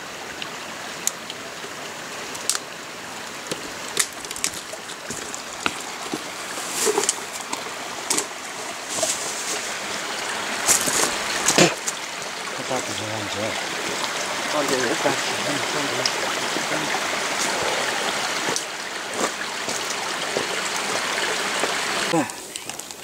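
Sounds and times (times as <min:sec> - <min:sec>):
creek water running over rocks: 0:00.0 - 0:23.0.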